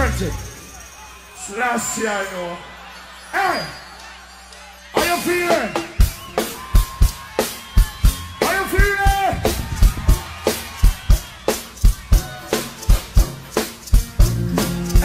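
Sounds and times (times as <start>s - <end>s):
live reggae band playing: 5.0s - 15.0s.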